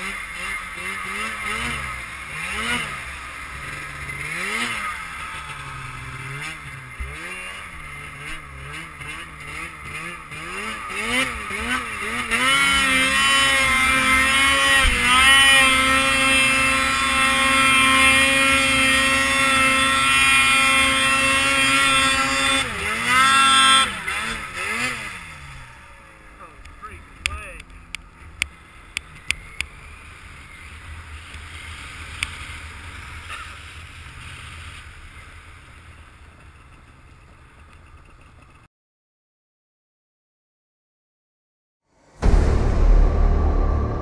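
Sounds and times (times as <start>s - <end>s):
snowmobile engine revving: 0.0s - 28.0s.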